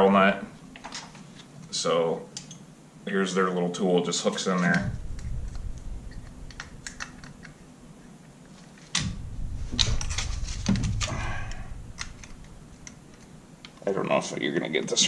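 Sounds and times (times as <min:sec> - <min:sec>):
low handling rumble: 0:04.8 - 0:07.6, 0:09.0 - 0:13.8.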